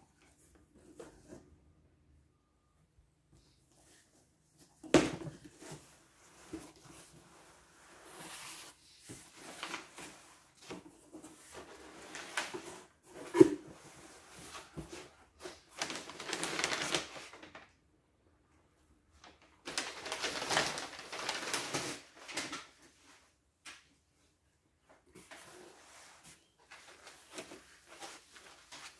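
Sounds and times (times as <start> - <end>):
packing paper rustling and crinkling: 8.0 - 10.6, 14.3 - 17.7, 19.2 - 22.8, 25.2 - 28.9.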